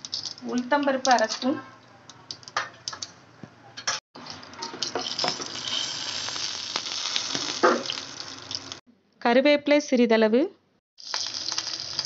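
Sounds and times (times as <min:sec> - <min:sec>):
seeds sizzling in hot oil: 0:04.8 - 0:08.8, 0:11.0 - 0:12.0.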